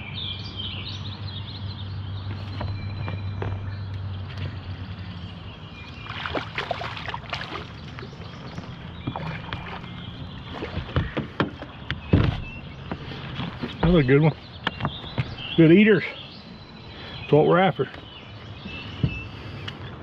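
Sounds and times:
steady low hum: 2.0 - 10.8
heavy knocks on boat: 2.5 - 3.9, 8.4 - 15.5, 19.0 - 19.2
fish splashing at water surface: 6.0 - 11.2.

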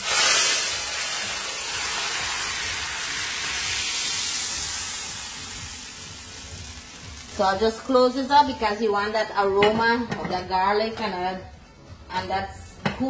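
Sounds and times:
hot oil hissing in liquid: 0.0 - 7.9.

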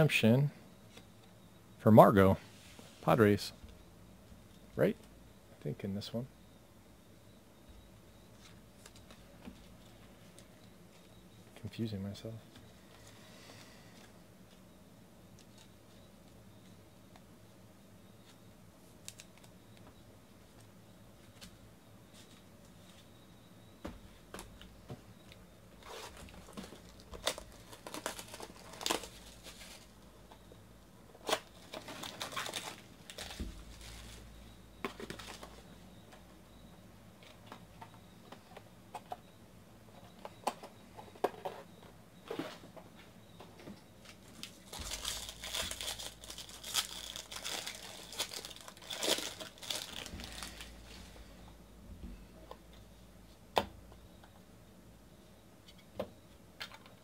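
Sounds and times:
card pack wrappers tearing and crinkling: 25.9 - 29.9, 31.2 - 34.2, 44.3 - 50.9.

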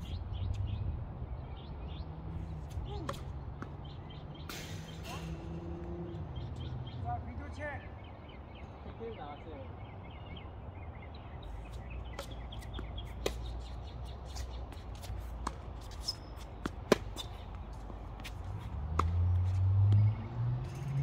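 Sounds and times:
ball bouncing on court: 3.0 - 3.8, 15.4 - 20.1
tennis ball hitting racket: 12.1 - 13.7, 14.3 - 19.6.

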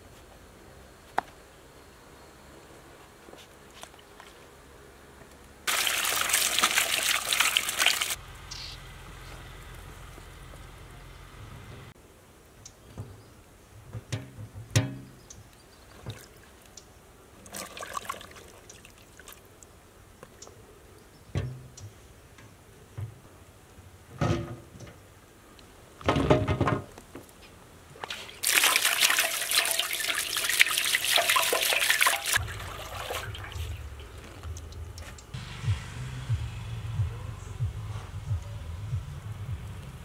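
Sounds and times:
water pouring: 5.7 - 8.2, 17.4 - 19.4, 28.0 - 35.0
water splashing in steel basin: 5.7 - 8.2, 17.4 - 19.4, 28.0 - 35.0.

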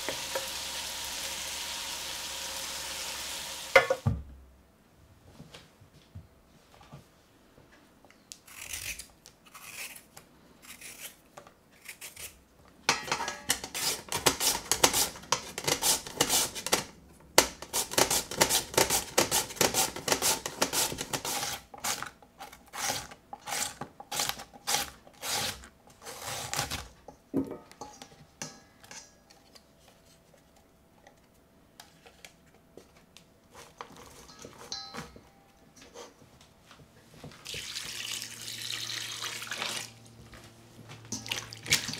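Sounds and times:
knife scraping potato: 8.5 - 11.2, 11.8 - 12.4, 13.5 - 16.8, 17.6 - 26.9
potato scraping on grater: 13.6 - 16.8, 17.7 - 26.8.

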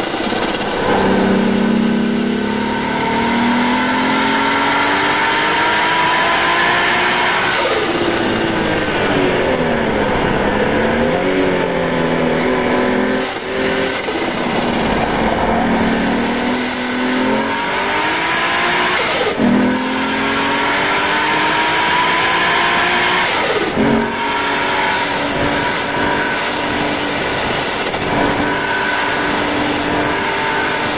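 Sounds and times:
car engine accelerating hard: 0.0 - 30.9
turbo rushing sound: 7.2 - 18.2.

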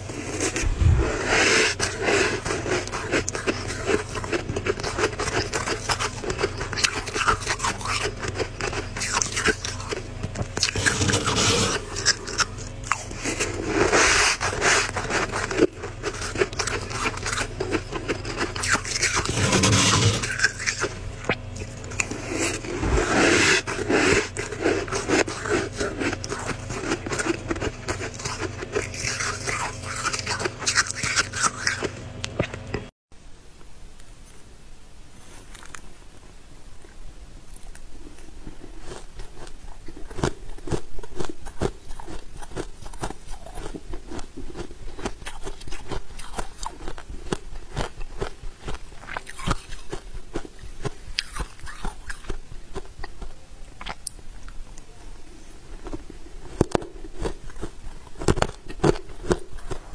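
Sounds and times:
freezer frost being scraped: 0.0 - 21.0, 22.0 - 31.9.

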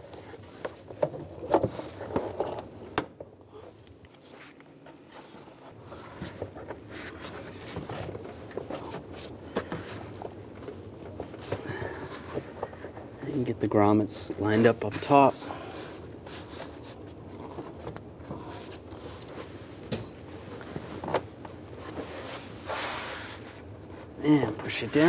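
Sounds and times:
plastic rubbing and scraping: 4.2 - 13.4.

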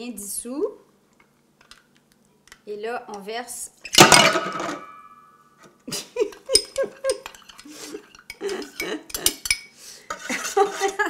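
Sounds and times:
metal spoon scraping glass bowl: 6.6 - 11.0.

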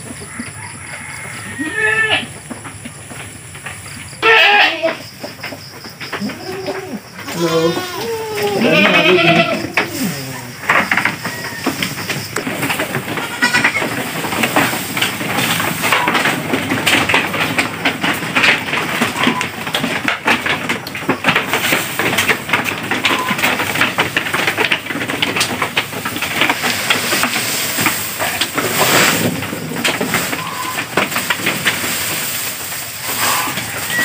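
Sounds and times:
grass rustling and crackling: 0.0 - 34.0
goats bleating: 1.5 - 2.4, 4.2 - 5.0, 6.2 - 11.7, 13.0 - 14.0.

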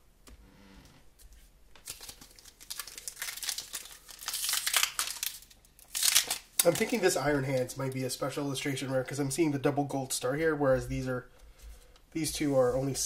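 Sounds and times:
plastic wrapper crinkling: 1.8 - 8.1.

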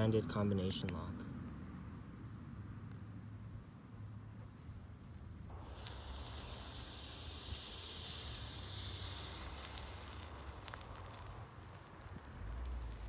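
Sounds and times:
thermite burning with rushing hiss: 5.5 - 13.0.

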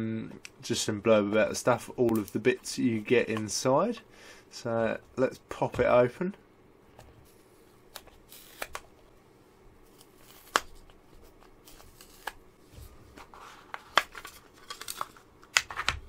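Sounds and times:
plastic packaging clicking and snapping: 13.8 - 16.0.

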